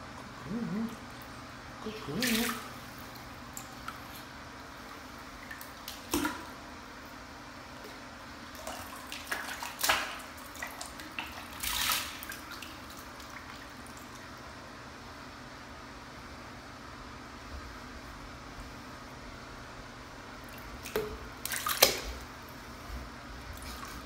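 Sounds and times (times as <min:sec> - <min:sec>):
steady low hum: 0:00.0 - 0:24.0
water splashing in a tub: 0:01.8 - 0:06.6, 0:08.4 - 0:14.4, 0:20.4 - 0:22.6.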